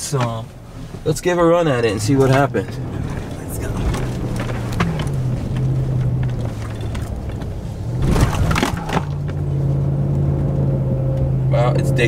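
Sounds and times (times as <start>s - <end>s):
truck engine droning: 0.0s - 12.0s
knocks and rattles: 2.2s - 9.5s.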